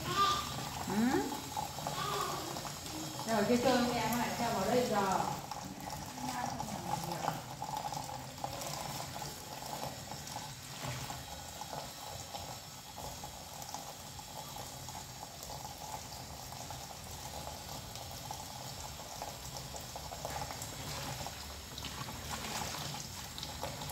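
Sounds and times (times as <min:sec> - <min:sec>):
tap running into plastic basin: 0:00.0 - 0:11.9.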